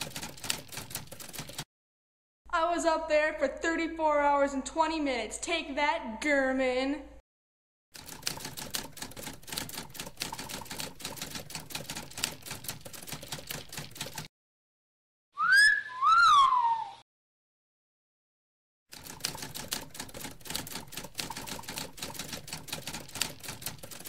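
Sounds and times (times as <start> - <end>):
rapid irregular clicking: 0.0 - 1.7, 8.0 - 14.3, 18.9 - 24.0.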